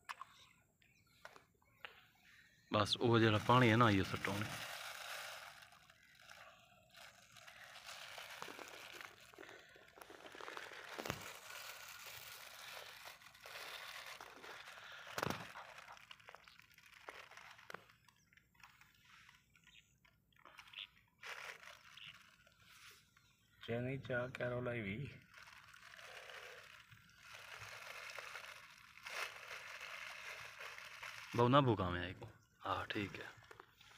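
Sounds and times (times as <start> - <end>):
plastic bags crinkling: 3.1 - 19.7, 20.4 - 22.8, 25.2 - 32.0.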